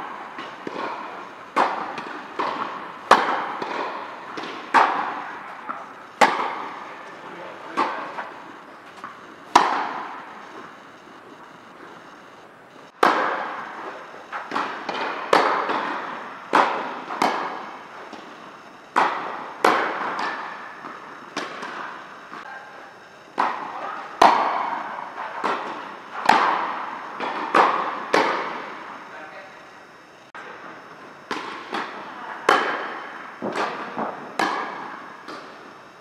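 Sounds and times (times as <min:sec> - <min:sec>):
tennis ball hit by rackets: 0:00.3 - 0:08.3, 0:08.9 - 0:10.7, 0:13.0 - 0:18.3, 0:18.9 - 0:21.9, 0:23.4 - 0:24.8, 0:25.4 - 0:28.6, 0:31.3 - 0:35.6.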